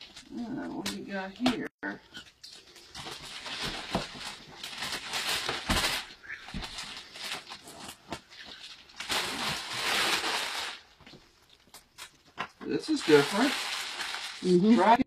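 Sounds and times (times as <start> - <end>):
wrapping paper rustling and tearing: 2.4 - 12.1, 12.7 - 15.0.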